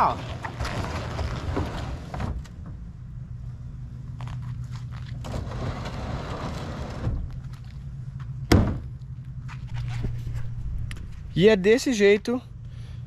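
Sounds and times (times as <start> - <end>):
boat cart rolling and scraping: 0.0 - 2.9, 4.2 - 8.4
steady low hum: 0.0 - 13.0
sharp thunk: 8.5 - 8.9.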